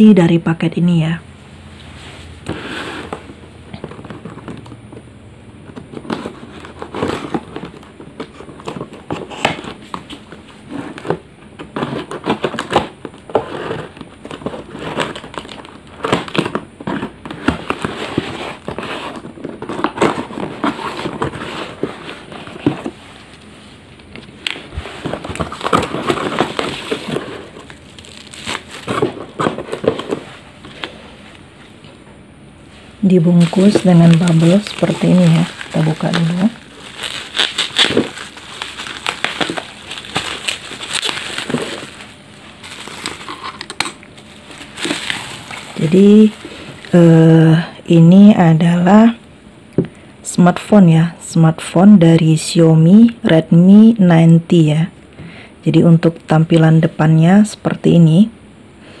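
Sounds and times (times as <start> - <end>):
plastic wrapping crinkling: 5.7 - 31.5, 33.0 - 47.7.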